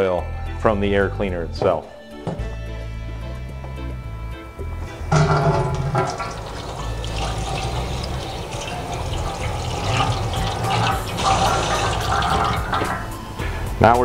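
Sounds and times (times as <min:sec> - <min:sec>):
tap water splashing into sink: 0:05.1 - 0:13.3.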